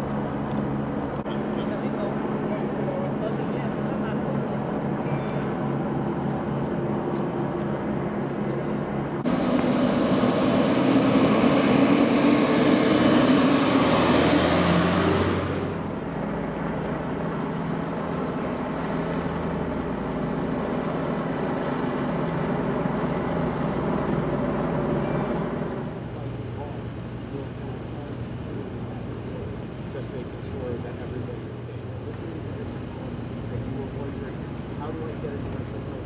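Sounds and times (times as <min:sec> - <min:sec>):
steady engine hum: 0:00.0 - 0:36.0
traffic noise: 0:00.0 - 0:36.0
vehicle noise surge: 0:09.2 - 0:26.1.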